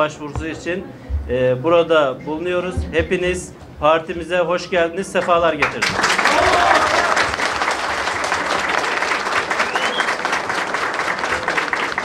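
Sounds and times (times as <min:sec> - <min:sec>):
crowd applauding: 0:05.2 - 0:12.0.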